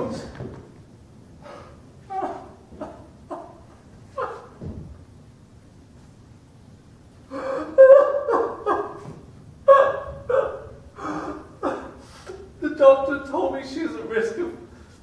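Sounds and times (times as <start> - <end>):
man sobbing: 1.4 - 4.4, 7.3 - 9.1, 9.7 - 13.0.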